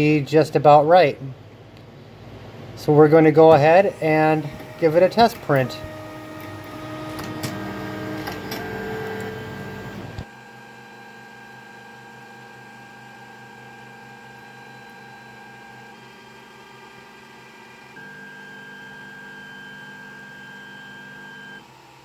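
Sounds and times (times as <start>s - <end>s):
printer fans humming: 1.9s - 21.6s
stepper motors whining: 3.4s - 10.3s
printer click: 3.5s - 10.2s.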